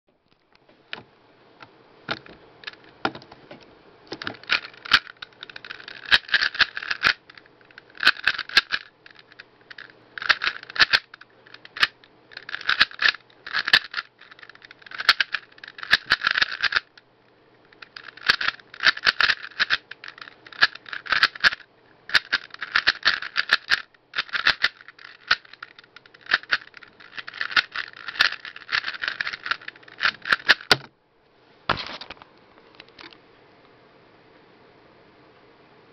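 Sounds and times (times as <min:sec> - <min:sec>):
puzzle cube plastic clicking: 0:04.1 - 0:17.0, 0:17.7 - 0:30.8.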